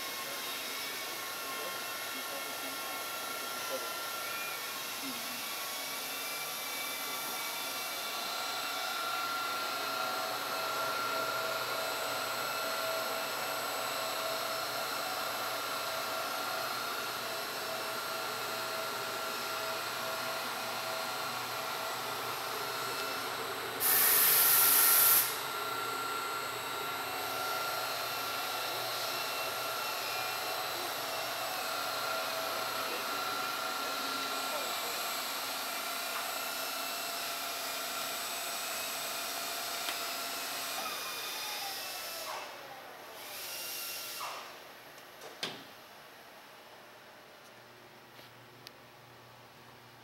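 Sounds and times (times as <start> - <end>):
industrial equipment whine and hum: 0.0 - 45.6
loud hiss: 23.8 - 25.4.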